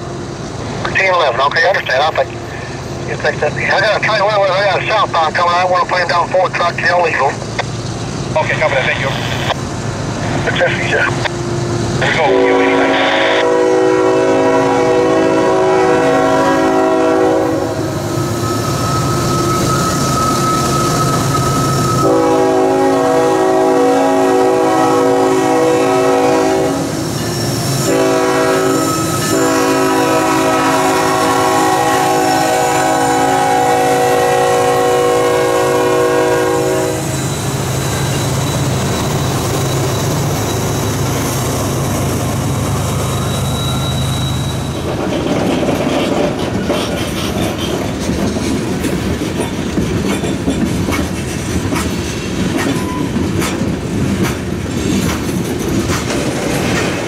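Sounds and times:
rumble and clatter of rail cars: 0.0s - 57.0s
locomotive air horn blasts: 12.2s - 17.9s, 21.9s - 27.0s, 27.8s - 37.1s.

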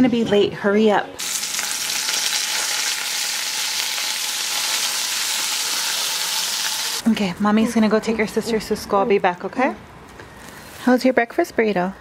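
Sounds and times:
sausages sizzling in a pan: 1.2s - 7.0s.

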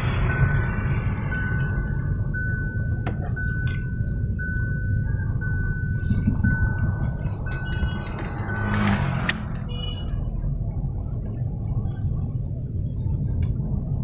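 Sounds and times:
car engine and tyre rumble: 0.0s - 14.0s
electronic warning beeps: 0.2s - 9.3s.

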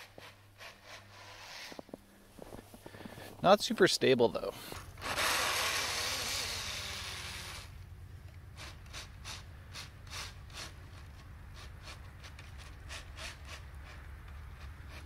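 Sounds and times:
soft crunches in snow: 1.2s - 3.8s
electric motor and track running: 4.8s - 15.0s.

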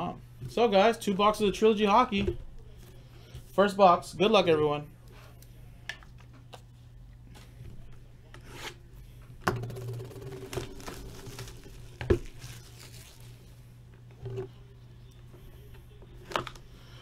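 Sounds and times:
sharp plastic crackles: 10.2s - 13.3s
plastic wrap rustling and crinkling: 10.3s - 13.6s.

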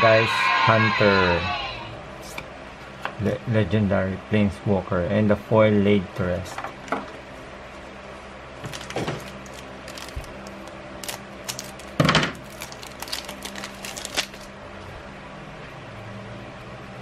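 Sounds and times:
foil wrapper tearing and crinkling: 8.6s - 14.5s.

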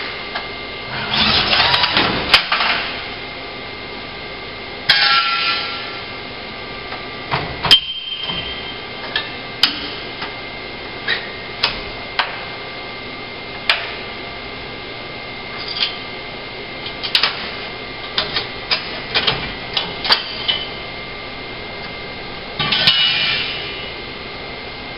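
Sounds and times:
background hum: 0.0s - 24.9s.

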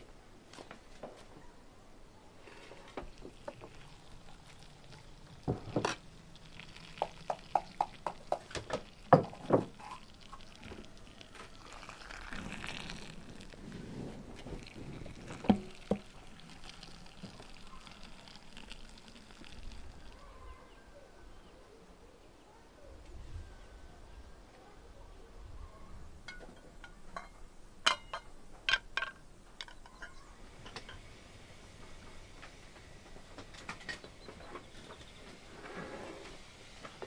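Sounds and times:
soft rustling: 9.7s - 20.1s.

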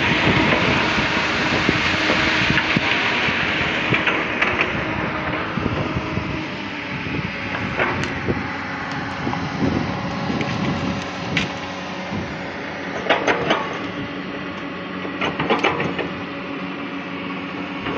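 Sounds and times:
large engine running: 0.0s - 17.9s.

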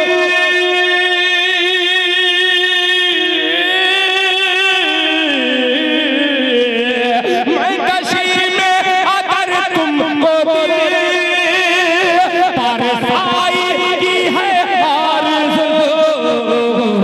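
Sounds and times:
man singing solo: 0.0s - 17.0s.

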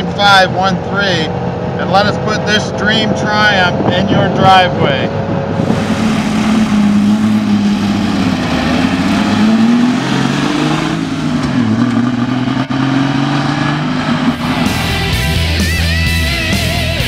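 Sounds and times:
car engine driving past: 5.1s - 15.7s
rock music: 13.2s - 17.0s.

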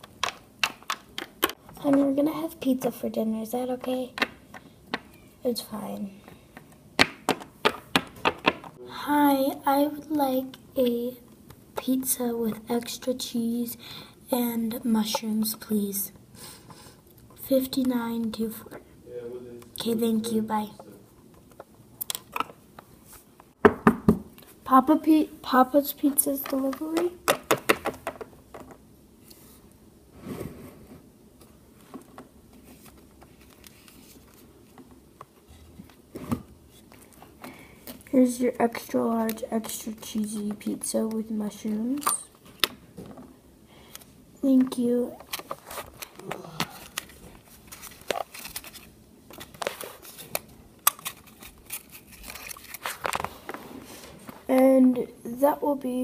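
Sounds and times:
paper crinkling and rustling: 45.3s - 54.4s.

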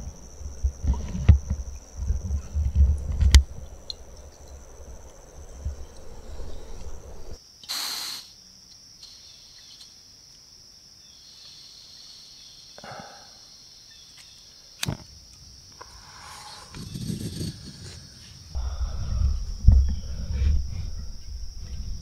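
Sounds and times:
insect chorus drone: 0.0s - 22.0s
short hissing burst: 7.6s - 8.4s.

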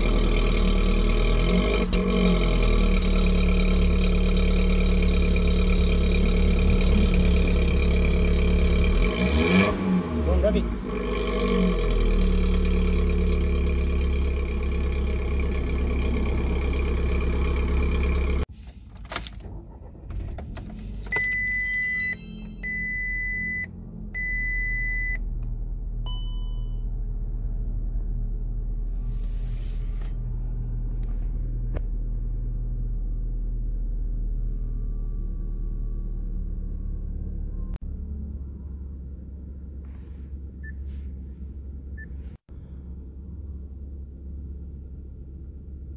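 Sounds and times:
car engine idling: 2.1s - 18.5s
dashboard warning chimes: 21.1s - 25.2s, 26.1s - 26.9s.

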